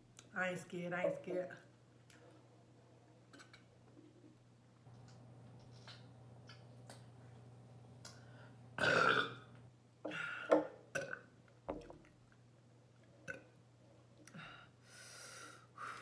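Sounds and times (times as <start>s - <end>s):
woman burping: 8.8s - 9.5s, 10.1s - 11.2s.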